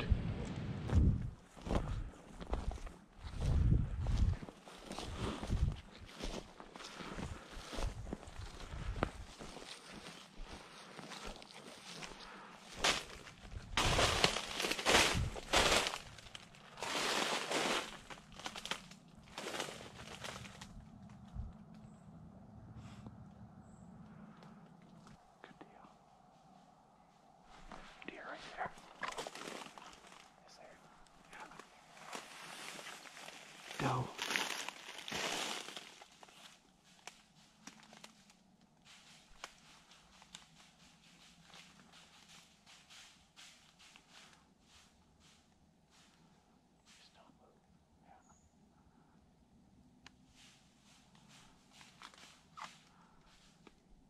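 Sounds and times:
footsteps crunching on snow and leaves: 0.9 - 21.3, 27.4 - 46.3, 50.3 - 53.7.

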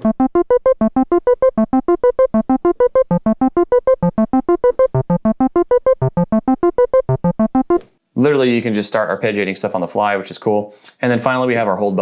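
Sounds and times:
staccato bass synthesizer arpeggio: 0.0 - 7.8.

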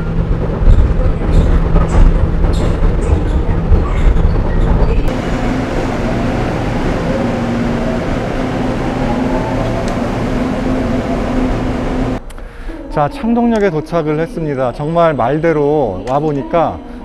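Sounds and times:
train motors whining: 0.0 - 12.2
train rumbling inside car: 0.0 - 12.2.

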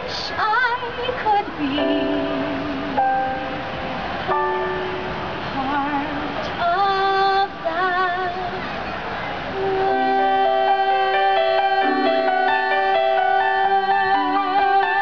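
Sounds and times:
sustained keyboard chords: 1.8 - 6.3, 9.6 - 15.0.

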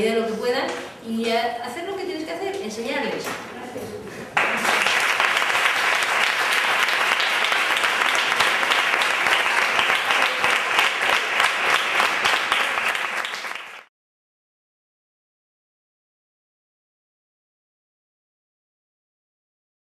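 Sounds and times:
audience applauding: 4.3 - 13.9.

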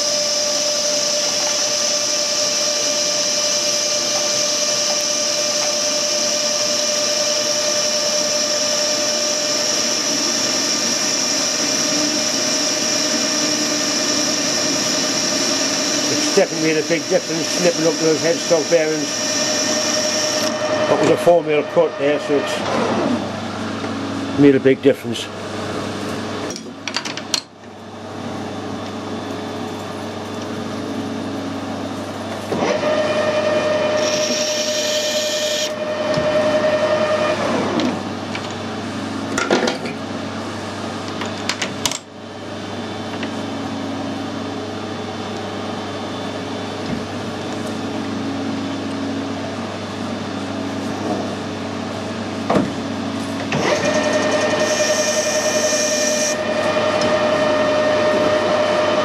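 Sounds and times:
metal lathe motor hum: 0.0 - 24.1, 28.0 - 39.4, 53.2 - 59.0
cutting whine and hiss: 0.3 - 23.2, 32.6 - 38.0, 53.5 - 59.0.

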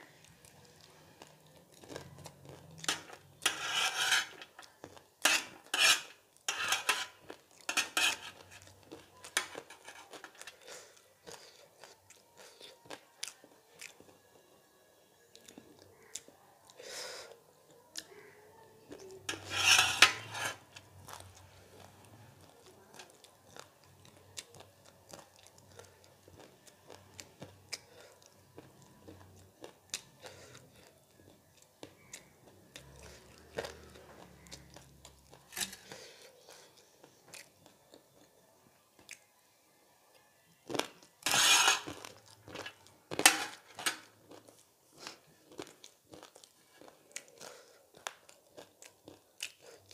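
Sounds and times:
spoon scraping metal tray: 2.9 - 4.6, 5.2 - 8.7, 9.4 - 10.5, 19.3 - 20.8, 41.2 - 44.0.

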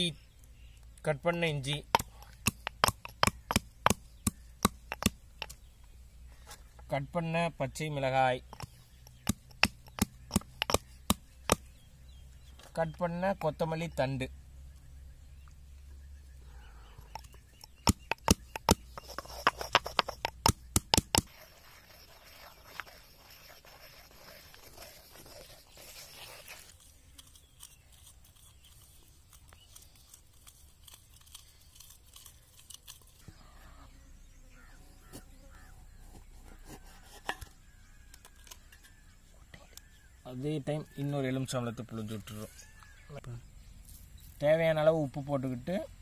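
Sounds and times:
pestle crushing and grinding: 1.6 - 5.7, 8.5 - 11.8, 17.0 - 33.4
pestle knocking in stone mortar: 1.7 - 5.6, 8.5 - 11.7, 17.1 - 21.3.

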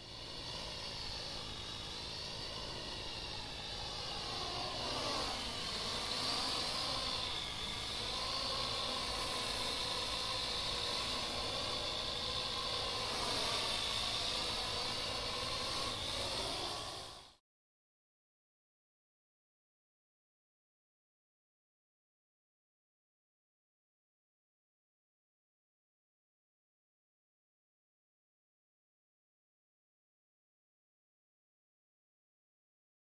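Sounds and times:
drone motors whining: 0.0 - 17.4.

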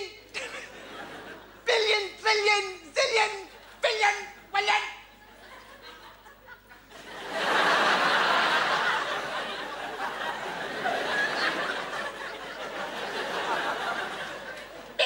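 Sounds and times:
large audience laughing: 0.3 - 1.9, 5.1 - 15.0.

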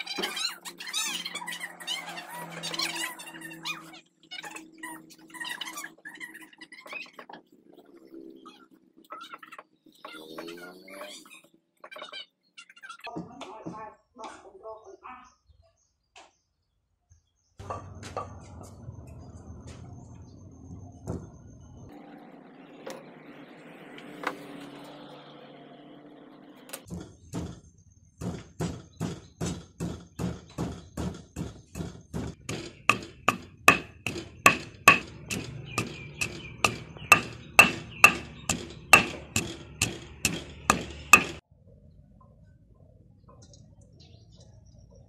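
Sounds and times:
wooden pestle pounding in stone mortar: 28.2 - 41.4.

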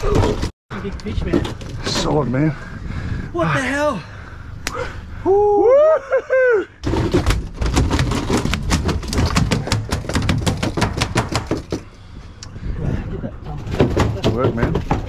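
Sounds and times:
brief whoop: 4.7 - 6.7.

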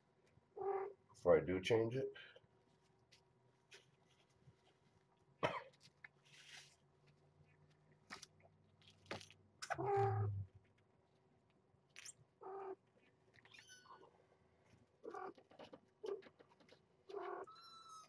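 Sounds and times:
person coughing: 5.4 - 5.8
toys clicking and rustling: 15.2 - 17.5.

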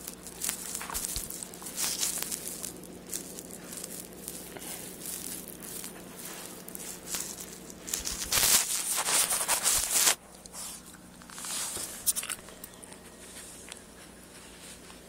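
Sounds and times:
dog scratching and rustling on carpet: 0.0 - 12.1
rubbing against microphone: 0.0 - 12.2.

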